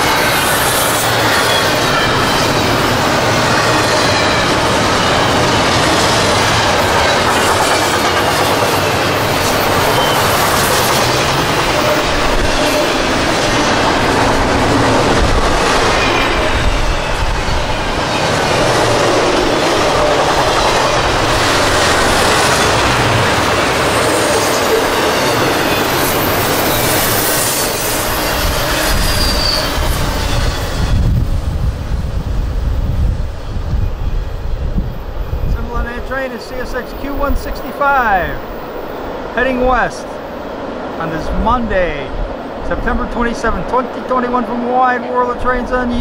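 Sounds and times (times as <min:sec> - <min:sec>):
train wheel squeal: 0:00.0 - 0:13.7, 0:15.6 - 0:19.2, 0:23.9 - 0:31.3.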